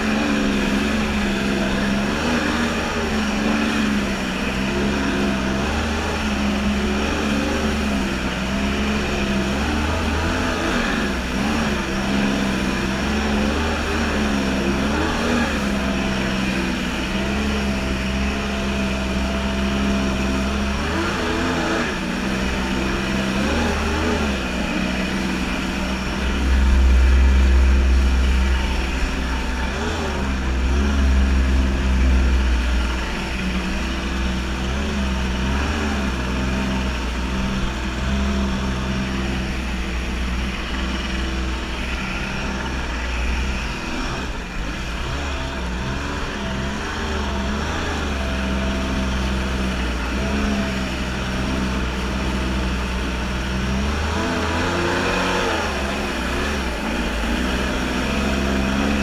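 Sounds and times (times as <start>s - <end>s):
jet ski engine running: 0.0s - 59.0s
heavy low rumble: 21.9s - 53.5s.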